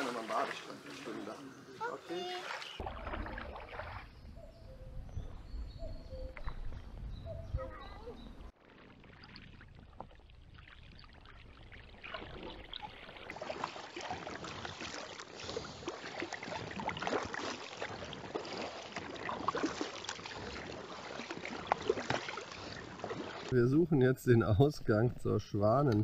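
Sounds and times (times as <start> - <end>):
paddle splashing in water: 0.0 - 4.2, 8.5 - 23.7
water dripping off paddle: 8.7 - 23.6.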